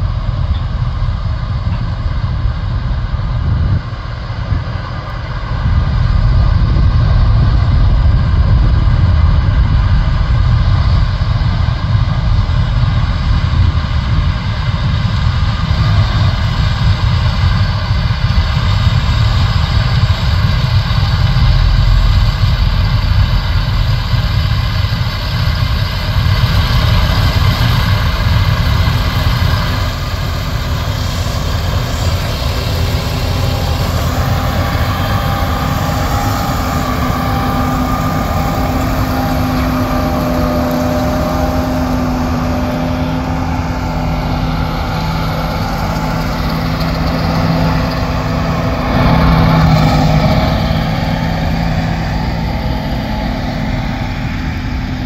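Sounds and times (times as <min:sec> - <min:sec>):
combine harvester engine drone: 0:00.0 - 0:55.0
steady hum: 0:00.0 - 0:55.0
threshing machinery whir: 0:12.0 - 0:55.0.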